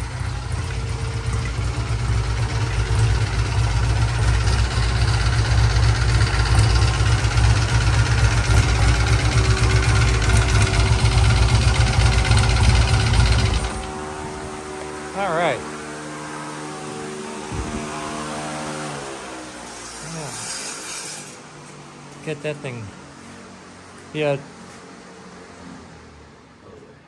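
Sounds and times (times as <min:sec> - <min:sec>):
motorcycle engine idling: 0:00.0 - 0:15.8.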